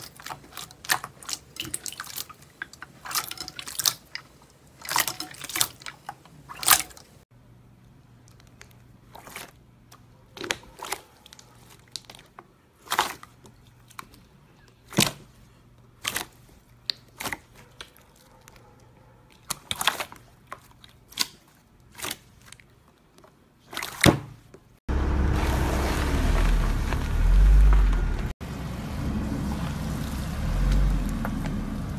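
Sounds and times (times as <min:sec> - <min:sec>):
car tyre rolling over slime: 0:24.9 - 0:28.3.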